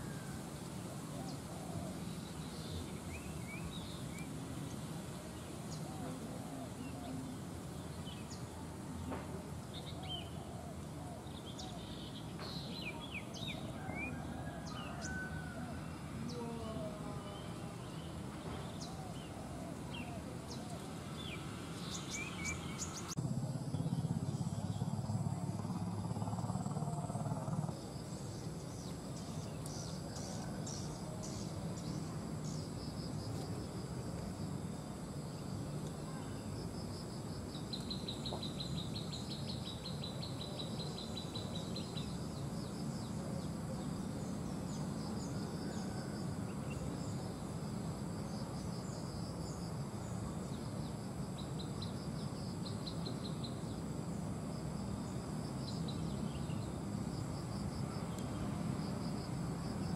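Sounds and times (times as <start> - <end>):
insects droning: 0.0 - 59.9
low steady rumble: 22.9 - 27.9.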